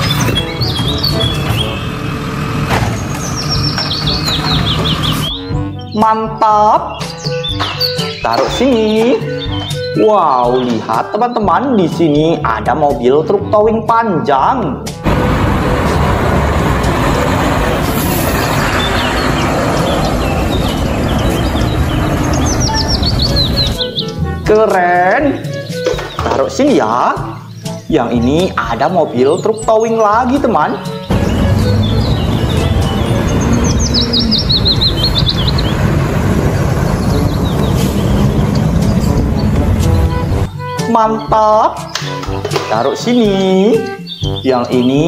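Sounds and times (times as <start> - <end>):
small birds chirping: 0.0 - 2.1, 2.9 - 12.0, 17.5 - 45.0
truck engine and road noise: 0.0 - 5.8, 14.8 - 24.5, 30.3 - 40.8.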